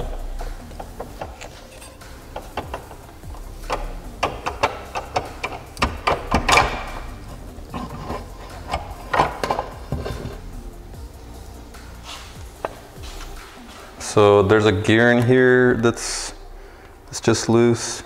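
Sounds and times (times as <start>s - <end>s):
loud metal clatter: 0.0s - 10.4s
metal clicks and knocks: 0.0s - 10.4s.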